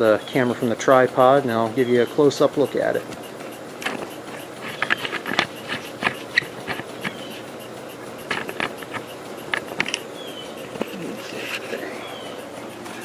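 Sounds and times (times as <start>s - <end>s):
camera handling clicks and scrapes: 3.8s - 7.2s, 8.3s - 10.0s, 10.7s - 11.8s.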